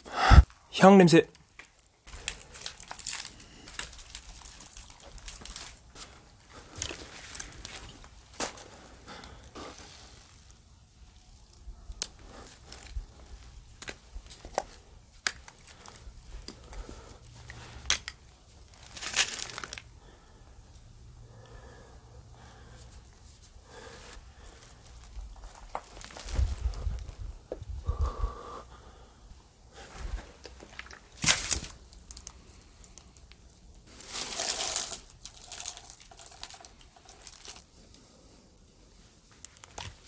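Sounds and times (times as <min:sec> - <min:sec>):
rustling over dirt and pebbles: 0:01.4 - 0:20.4, 0:22.4 - 0:28.2, 0:29.7 - 0:40.0
footsteps crunching on debris: 0:01.5 - 0:08.8, 0:18.7 - 0:19.9, 0:24.8 - 0:27.2, 0:29.8 - 0:33.0, 0:33.9 - 0:37.6
rustling scrape: 0:33.9 - 0:37.7.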